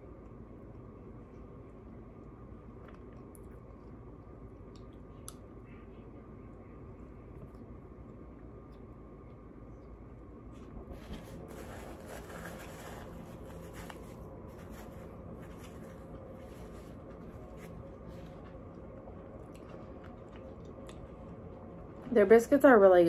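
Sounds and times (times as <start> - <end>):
low room hum: 0.0 - 23.0
chewing soft biscuit: 11.5 - 22.1.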